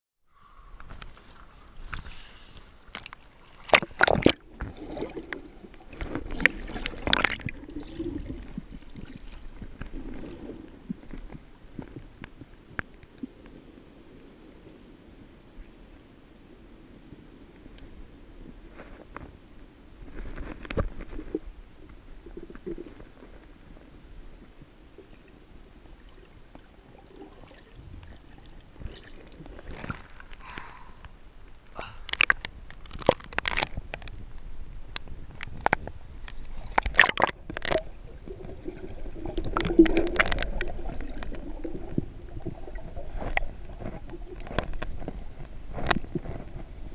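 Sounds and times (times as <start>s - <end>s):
water splashing and bubbling: 0.8s - 13.6s, 20.1s - 34.3s, 34.9s - 46.9s
seawater sloshing and splashing: 2.9s - 11.0s
muffled underwater rumble: 3.9s - 46.9s.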